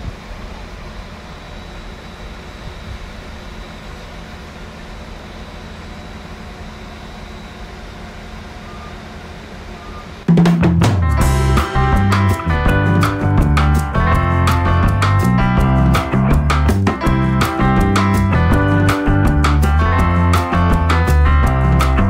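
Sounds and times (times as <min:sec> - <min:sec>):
train running hum: 0:00.0 - 0:10.3.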